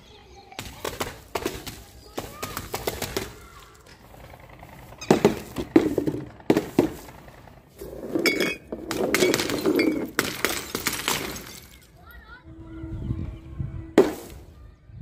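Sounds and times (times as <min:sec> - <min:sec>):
glass bottles clinking and breaking: 0:08.2 - 0:12.0.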